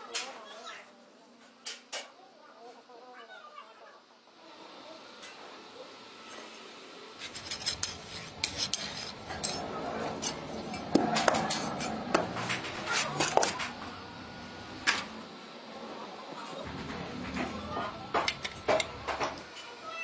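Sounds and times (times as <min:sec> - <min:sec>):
metal scraping on sandy floor: 0:07.2 - 0:13.8.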